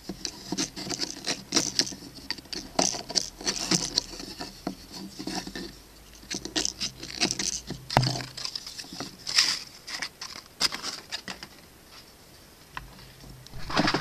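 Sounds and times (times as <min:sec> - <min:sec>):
wooden wheel knocking and scraping: 0:00.0 - 0:05.6, 0:13.6 - 0:14.0.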